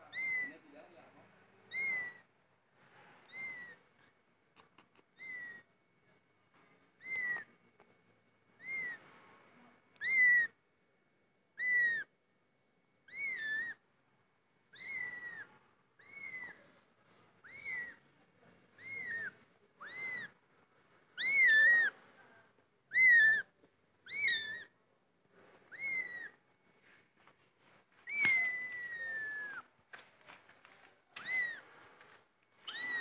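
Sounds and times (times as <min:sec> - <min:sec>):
kitten meowing: 0:00.0 - 0:00.6, 0:01.7 - 0:02.3, 0:03.3 - 0:03.8, 0:04.6 - 0:05.7, 0:07.0 - 0:07.5, 0:08.6 - 0:09.0, 0:10.0 - 0:10.6, 0:11.6 - 0:12.1, 0:13.1 - 0:13.8, 0:14.7 - 0:16.6, 0:17.4 - 0:18.0, 0:18.8 - 0:20.4, 0:21.2 - 0:22.0, 0:22.9 - 0:24.8, 0:25.7 - 0:26.4, 0:28.0 - 0:29.7, 0:31.1 - 0:31.8, 0:32.6 - 0:33.0.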